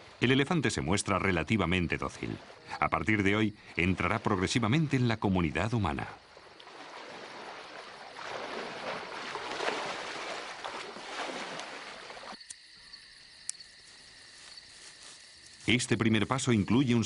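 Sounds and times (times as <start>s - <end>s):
water splashing and sloshing: 0.0s - 12.6s
insects chirring: 0.0s - 17.0s.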